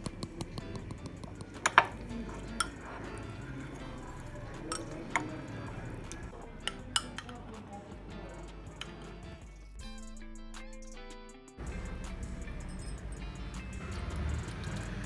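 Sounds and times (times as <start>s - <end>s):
spoon clinking against glass bowl: 0.0s - 7.5s.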